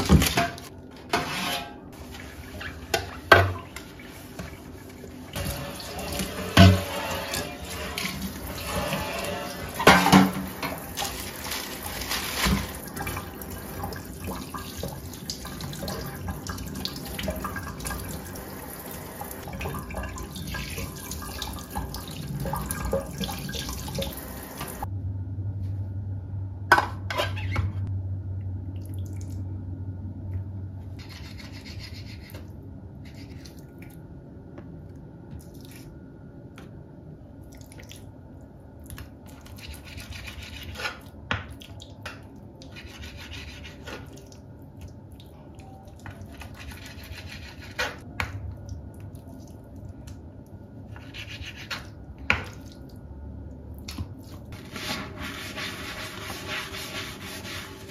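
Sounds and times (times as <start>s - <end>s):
low hum: 21.8s - 27.1s, 27.7s - 37.6s.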